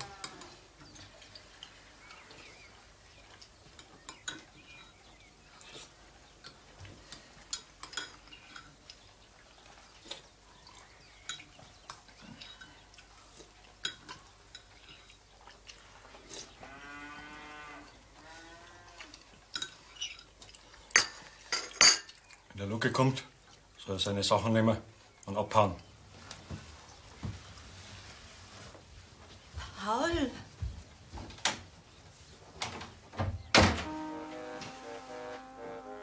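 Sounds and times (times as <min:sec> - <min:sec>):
cutlery and dishes clinking: 0:06.4 - 0:08.8, 0:19.5 - 0:22.2.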